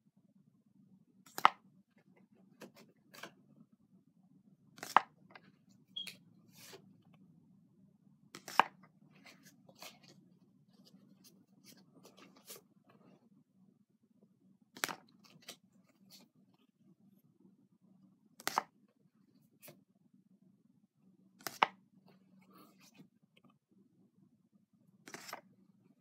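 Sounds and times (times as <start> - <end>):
cards clicking and rustling: 4.8 - 5.1, 8.4 - 10.2, 21.4 - 21.8, 25.1 - 25.4.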